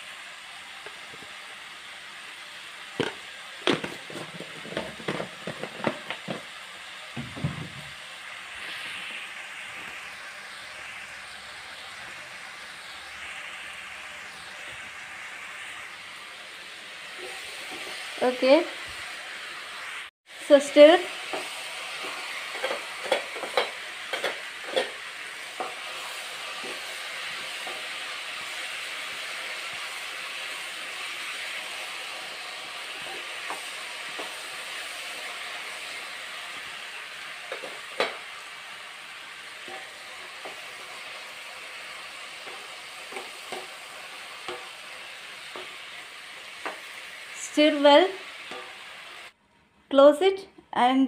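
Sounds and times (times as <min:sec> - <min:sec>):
food sizzling in a pan: 0:00.0 - 0:49.4
spatula scraping a pan: 0:03.7 - 0:06.5, 0:17.1 - 0:18.5, 0:21.2 - 0:28.7, 0:32.8 - 0:34.5, 0:39.5 - 0:41.1, 0:41.9 - 0:47.1.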